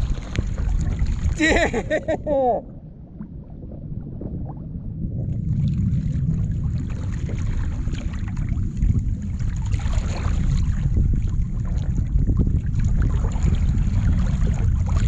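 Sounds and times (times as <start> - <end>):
small water splashes: 0.0 - 2.0, 5.4 - 15.0
wind buffeting microphone: 0.0 - 2.4, 3.8 - 15.0
water sloshing against hull: 0.0 - 15.0.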